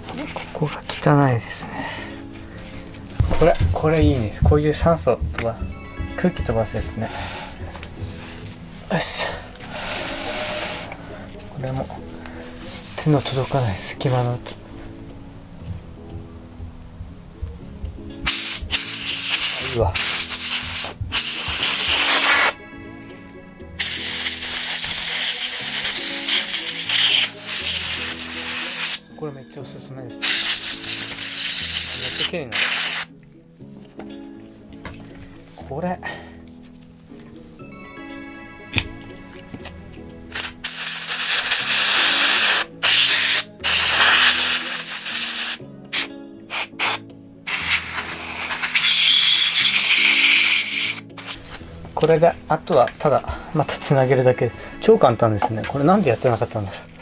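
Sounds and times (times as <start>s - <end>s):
soft background music: 0.0s - 57.0s
compressed air spraying: 9.7s - 10.9s, 18.2s - 22.6s, 23.8s - 29.0s, 30.2s - 33.1s, 40.3s - 51.5s.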